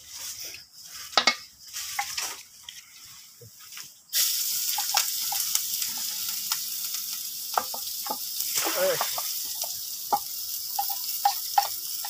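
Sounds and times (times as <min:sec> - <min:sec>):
food sizzling in hot oil: 0:04.1 - 0:12.0.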